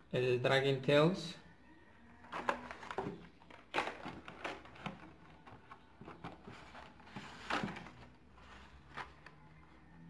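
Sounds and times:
packaging rustle: 2.2 - 9.8
plastic and card crinkling: 2.2 - 10.0.

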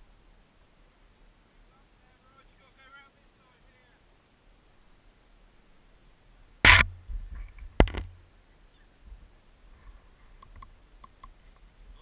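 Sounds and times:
mountainboard knocks: 6.7 - 8.2.

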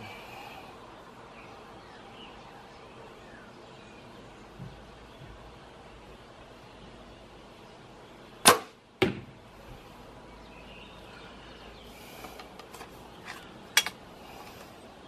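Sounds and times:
arrow striking target: 8.4 - 9.3.

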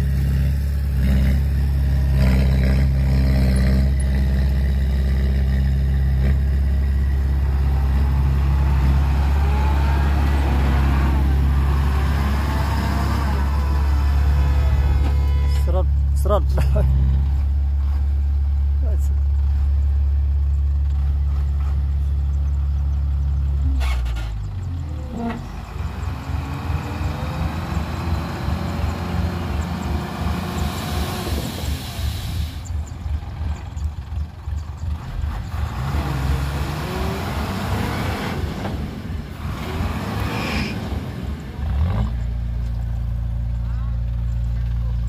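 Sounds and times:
diesel truck engine labouring: 0.0 - 45.0.

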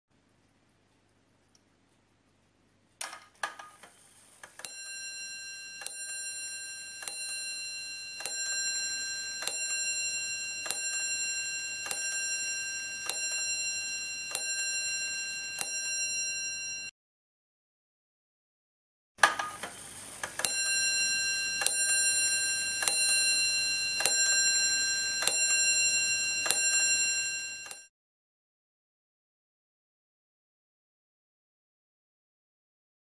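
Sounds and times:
clock mechanism clicks: 2.9 - 4.8, 7.0 - 7.6, 8.2 - 9.9, 10.6 - 11.2, 11.8 - 12.4, 21.6 - 25.7, 26.4 - 26.9
clock bell strikes ringing: 4.6 - 16.9, 20.4 - 27.9.

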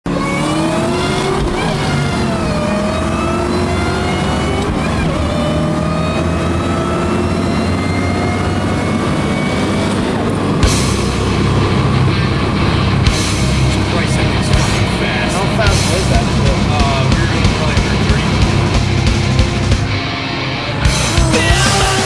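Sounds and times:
car engine accelerating: 0.0 - 22.0.

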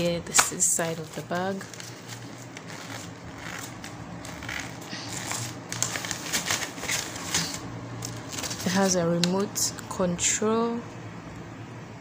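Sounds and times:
nylon bag rustling: 0.6 - 9.0.

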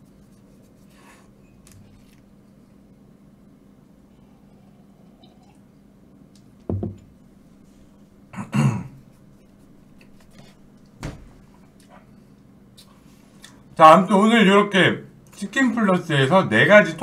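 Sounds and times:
objects thumping on a table: 6.7 - 7.1.

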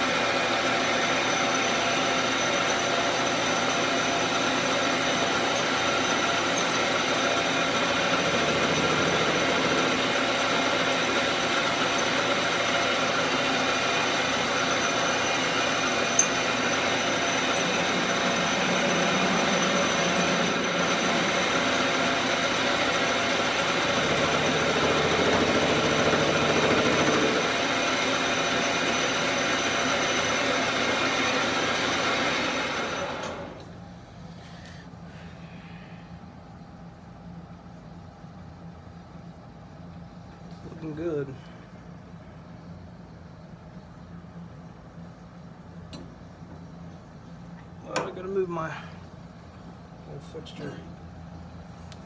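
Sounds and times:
metal lathe running: 0.0 - 33.6.

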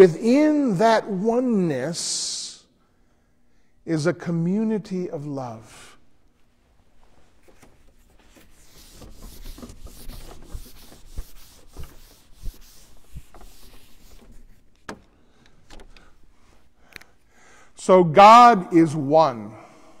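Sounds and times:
eraser rubbing whiteboard: 8.3 - 14.7.

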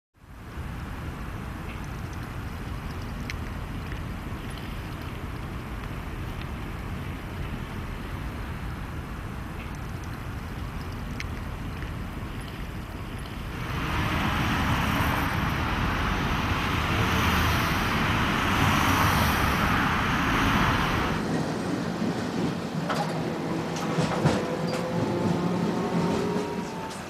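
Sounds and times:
faint steady hum: 0.2 - 21.2
streetcar and road traffic passing: 0.2 - 27.0
rattling clicks inside streetcar: 1.2 - 27.0.

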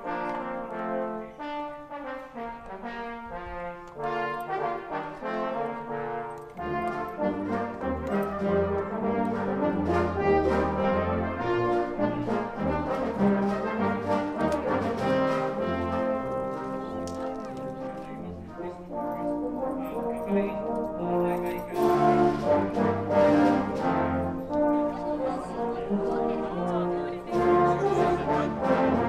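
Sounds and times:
brass band playing: 0.0 - 29.0.

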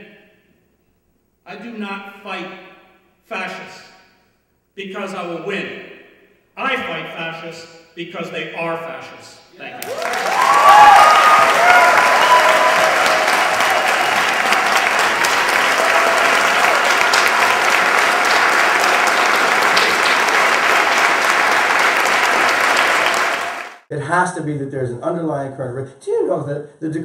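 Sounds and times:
audience applauding: 9.7 - 23.8
crowd shouts: 9.7 - 23.8.

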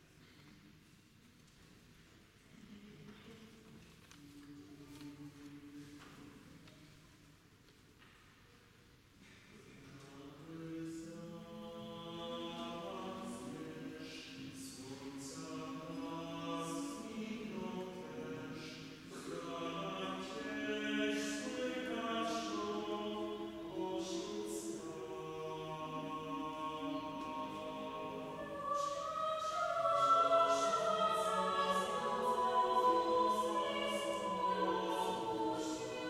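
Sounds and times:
choir singing a cappella: 9.8 - 36.0.

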